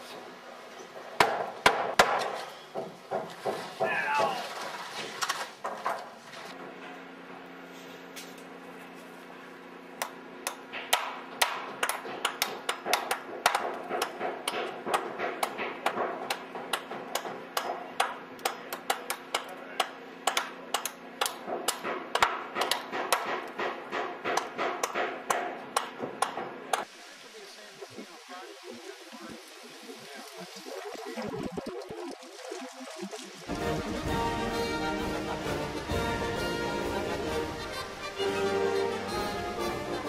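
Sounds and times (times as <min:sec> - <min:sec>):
hammer striking lumber: 0:01.2 - 0:04.0, 0:10.0 - 0:26.8.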